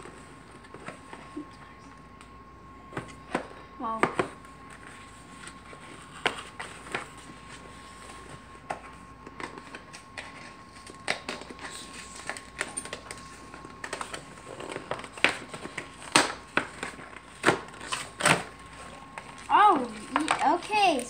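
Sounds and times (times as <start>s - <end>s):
packing paper rustling: 4.6s - 21.0s.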